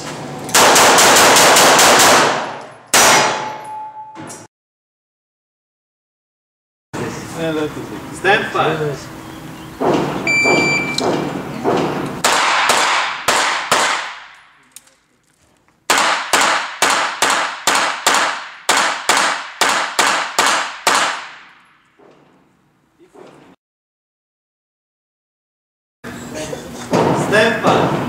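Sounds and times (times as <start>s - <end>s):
pistol shots with echo: 0.5s - 3.6s, 10.5s - 14.4s, 15.9s - 21.6s
shot timer beep: 10.3s - 11.0s.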